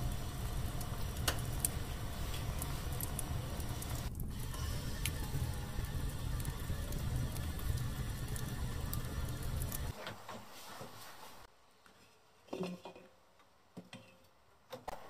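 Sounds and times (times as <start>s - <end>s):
pot bubbling and boiling: 0.0s - 10.1s.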